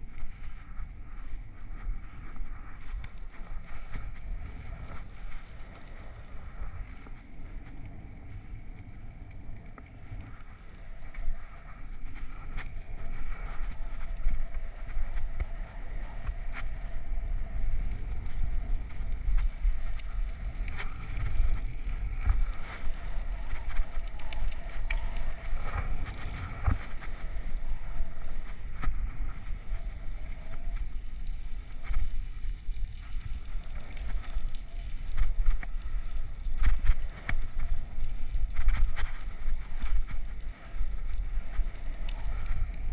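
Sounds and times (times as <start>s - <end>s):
wind rumbling on microphone: 0.0s - 42.9s.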